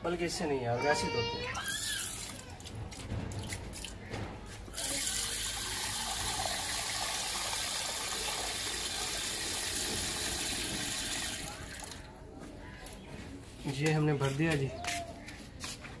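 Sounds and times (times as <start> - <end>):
tap water running into bowl: 4.7 - 12.0.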